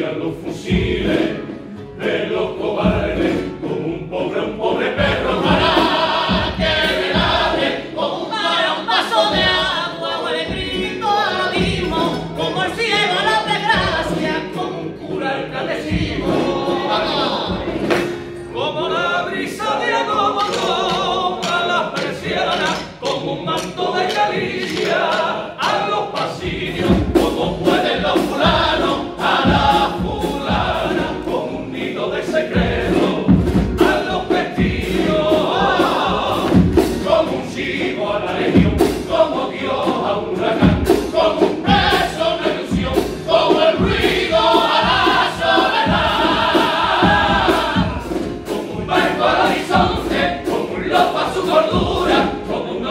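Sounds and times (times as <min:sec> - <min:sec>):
male chorus singing in harmony: 0:00.0 - 0:52.9
guitars playing: 0:00.2 - 0:52.9
regular beat: 0:04.7 - 0:09.9, 0:20.3 - 0:52.9.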